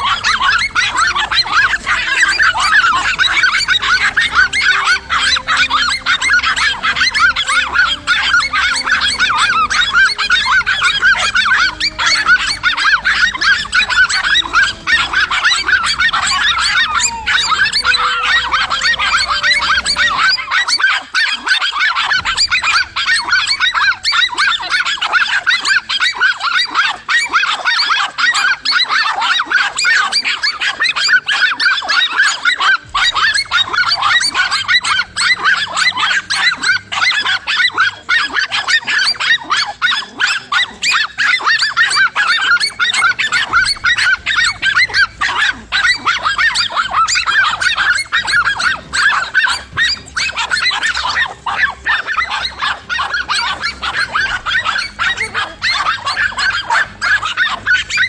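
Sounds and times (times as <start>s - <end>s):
dogs barking: 0.0s - 58.0s.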